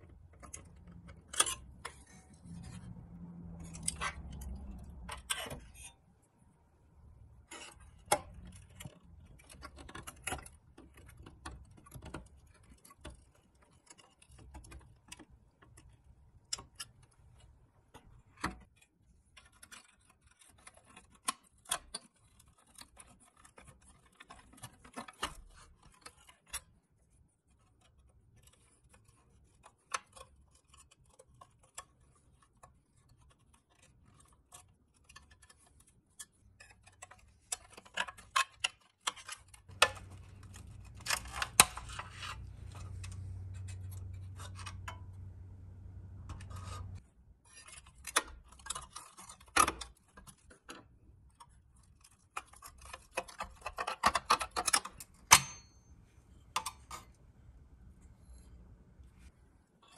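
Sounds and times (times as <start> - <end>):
metal toy parts and tools clicking: 3.6 - 6.0, 27.6 - 45.3.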